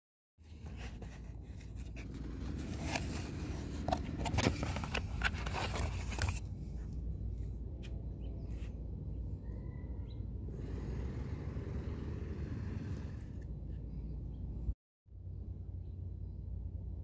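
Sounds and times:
cardboard packaging scraping and crackling: 0.6s - 6.4s.

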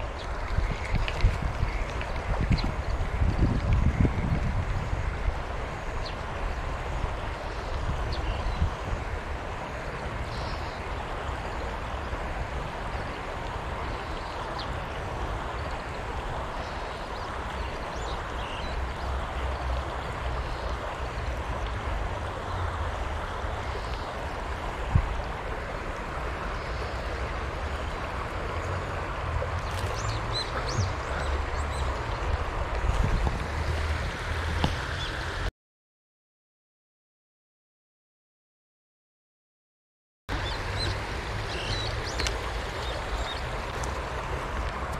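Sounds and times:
wind buffeting microphone: 0.0s - 9.5s, 24.6s - 25.6s, 29.1s - 35.2s.

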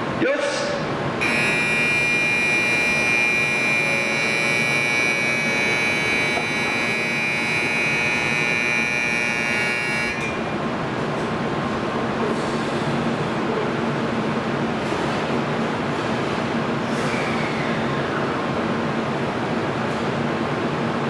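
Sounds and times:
electronic buzzer ringing: 1.2s - 10.6s.

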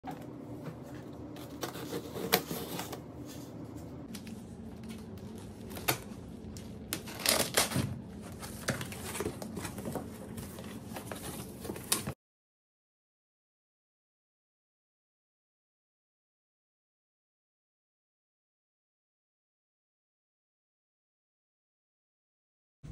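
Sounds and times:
cardboard scraping and rustling: 1.4s - 3.5s, 7.0s - 12.2s.

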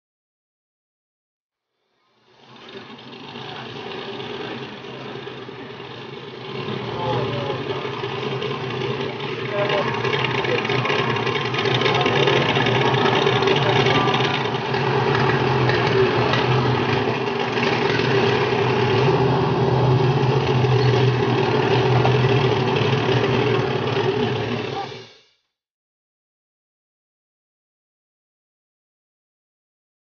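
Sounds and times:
boat engine running: 2.2s - 25.1s.

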